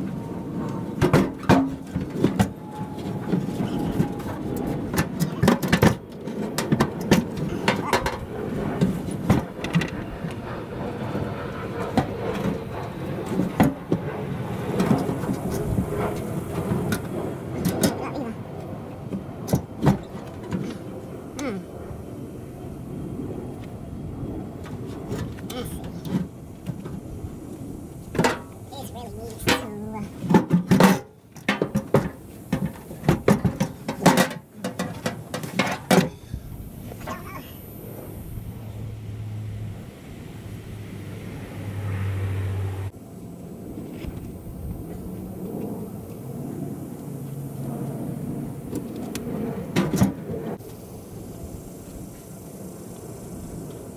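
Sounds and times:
tools knocking and clanking on metal: 30.3s - 36.2s
low steady rumble: 32.1s - 53.9s.

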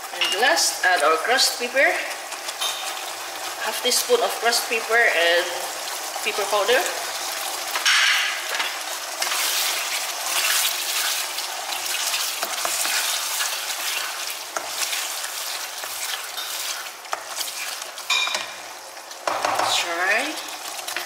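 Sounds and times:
sauce sizzling in a frying pan: 0.0s - 21.0s
spatula tapping and scraping pan: 12.1s - 18.6s, 19.2s - 19.8s.

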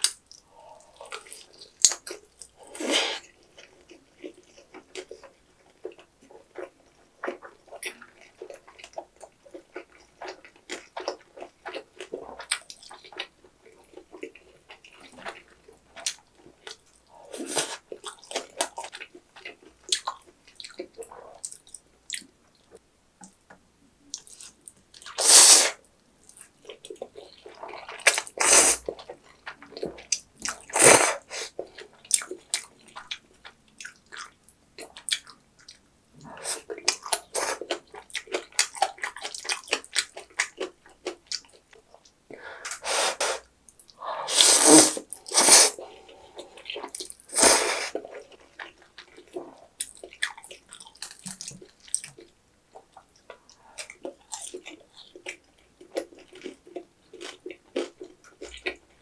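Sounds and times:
wet chewing: 26.2s - 42.8s, 45.0s - 59.0s
slurping noodles: 30.7s - 31.6s, 42.6s - 48.3s.

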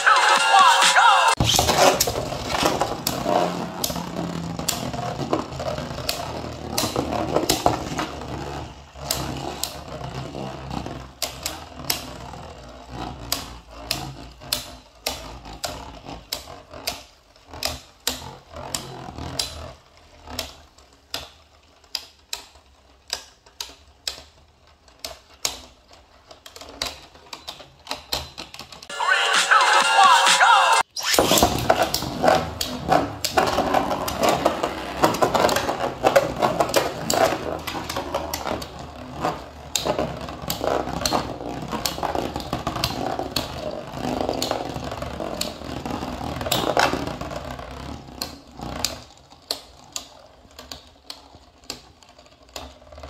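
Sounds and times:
spinning tops whirring: 0.0s - 26.8s, 28.8s - 53.0s.

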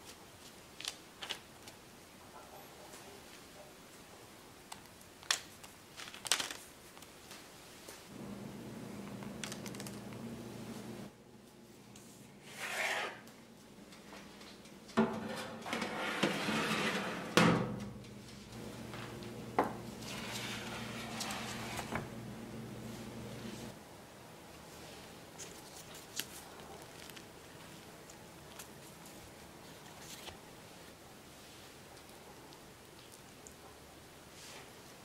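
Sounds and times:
low steady hum: 8.1s - 12.4s, 17.4s - 26.0s
metal tray scraping on oven rack: 15.0s - 17.8s, 20.0s - 22.1s.

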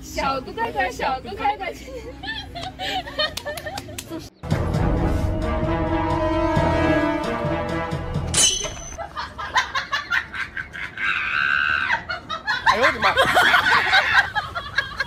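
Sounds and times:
woman laughing hard: 9.0s - 15.0s.

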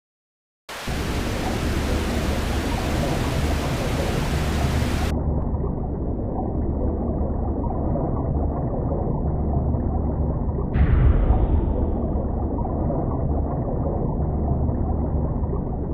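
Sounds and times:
underwater rushing hiss: 0.8s - 5.1s
underwater low rumble: 0.9s - 15.9s.

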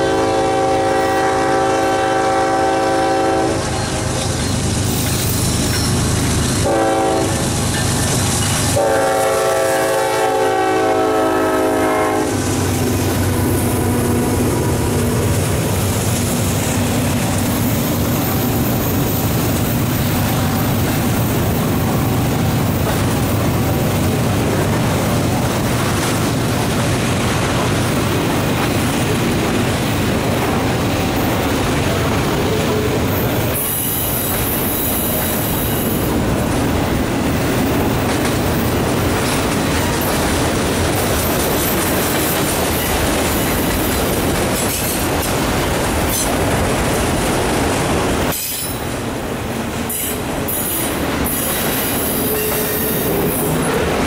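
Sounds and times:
locomotive air horn blast: 0.0s - 4.0s, 6.6s - 7.5s, 8.6s - 13.0s, 52.0s - 53.9s
freight train rumbling on rails: 0.0s - 54.0s.

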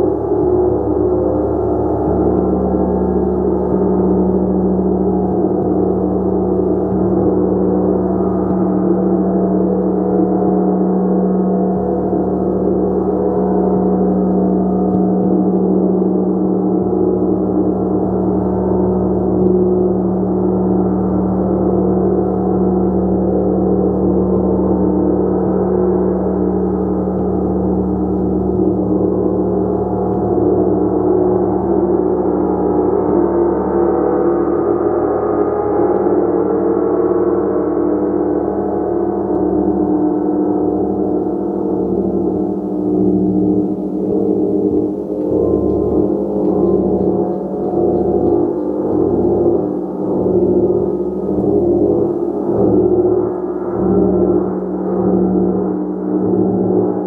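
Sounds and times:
gong ringing: 42.3s - 53.1s.

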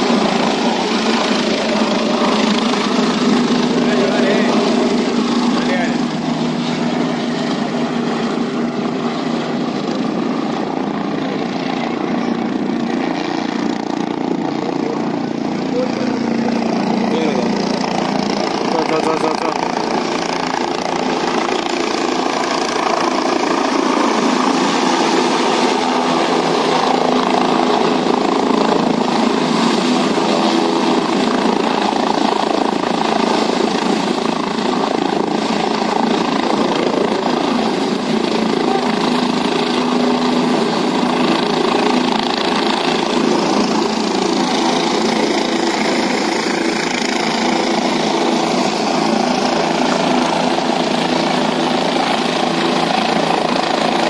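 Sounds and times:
helicopter engine and rotor: 0.0s - 54.0s.

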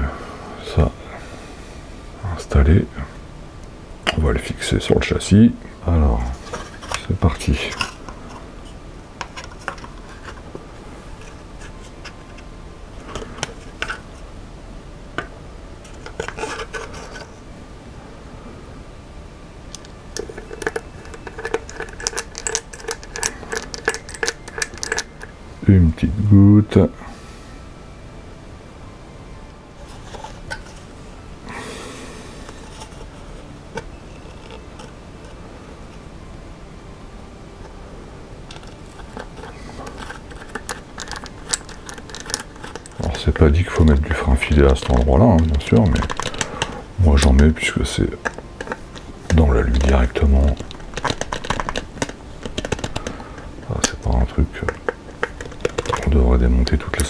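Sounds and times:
plastic parts clicking and rubbing: 6.3s - 10.6s, 11.2s - 14.2s, 15.2s - 17.4s, 19.7s - 25.4s, 29.8s - 30.9s, 32.4s - 36.0s, 38.5s - 57.0s
handling rustle: 6.3s - 14.3s, 15.8s - 17.4s, 38.5s - 57.0s.

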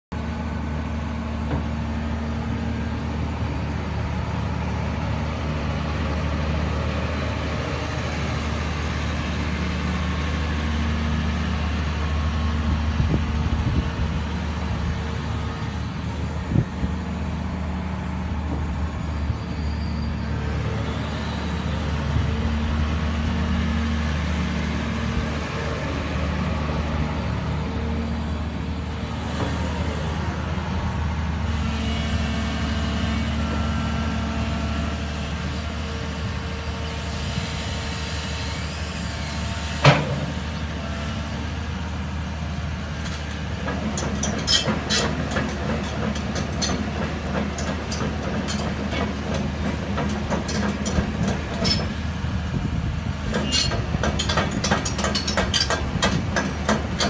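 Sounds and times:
excavator diesel engine running: 0.1s - 57.0s
excavator tracks moving: 0.2s - 57.0s.

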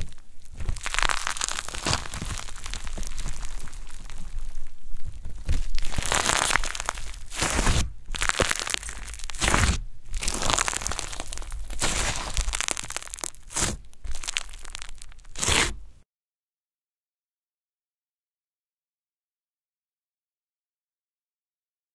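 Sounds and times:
slime crackling and squishing: 0.0s - 15.9s.

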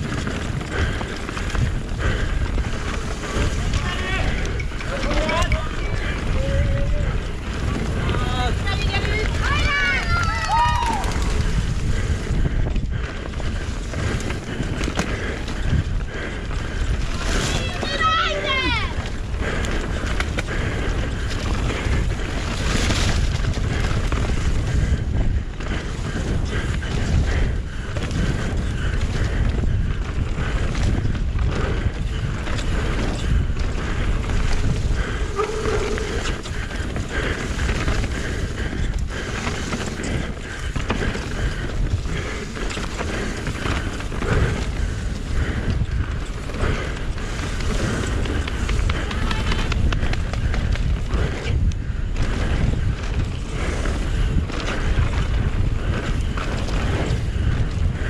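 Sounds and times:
wind rushing over microphone: 0.0s - 58.0s
bike knocks and rattles: 19.0s - 58.0s.

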